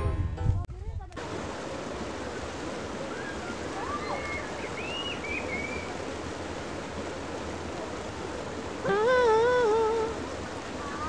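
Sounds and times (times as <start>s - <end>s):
river water rushing over rocks: 1.2s - 11.0s
faint high cries: 3.1s - 5.1s.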